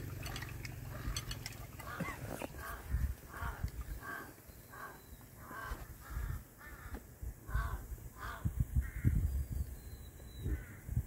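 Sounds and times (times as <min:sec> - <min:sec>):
crow cawing: 0:01.8 - 0:09.0.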